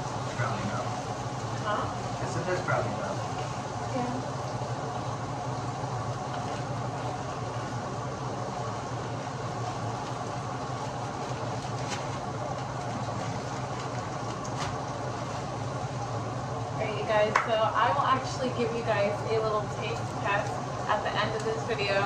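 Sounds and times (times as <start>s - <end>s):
vegetables sizzling in a pan: 0.0s - 12.2s
low constant hum: 0.0s - 22.0s
plastic bag crinkling: 9.5s - 15.6s.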